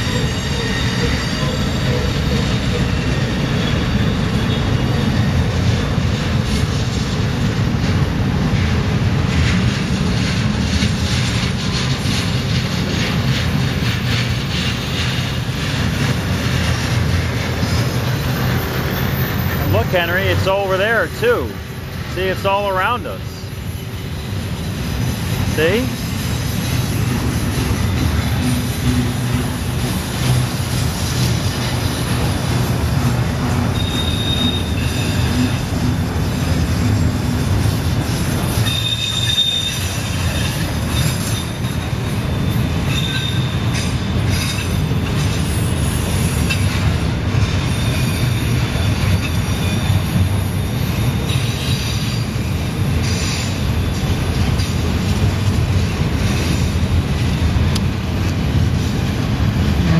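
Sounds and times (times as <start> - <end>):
high wheel squeals: 0.0 - 5.7, 13.0 - 54.2
train wheels rumbling on rail: 0.0 - 59.9.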